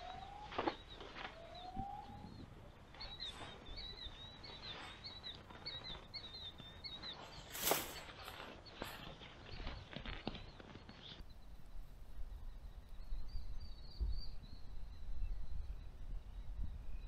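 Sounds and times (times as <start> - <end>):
birds calling: 0.0 - 17.0
tent fabric rustling: 7.1 - 10.2.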